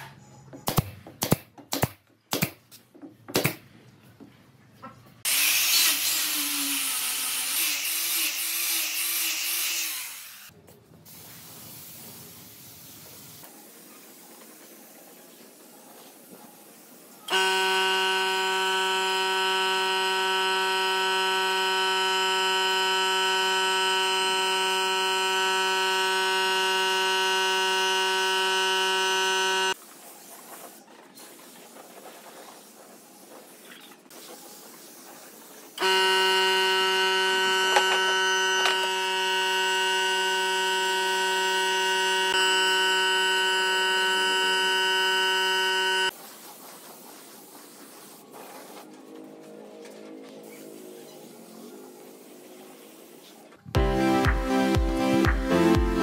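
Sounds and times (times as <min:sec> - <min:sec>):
spray gun buzzing: 0:17.3 - 0:29.8, 0:35.8 - 0:46.6.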